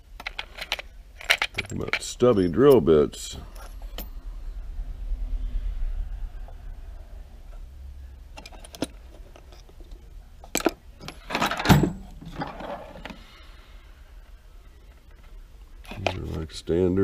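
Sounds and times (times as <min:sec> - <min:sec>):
drill bits clinking and rattling: 0:00.2 - 0:04.0.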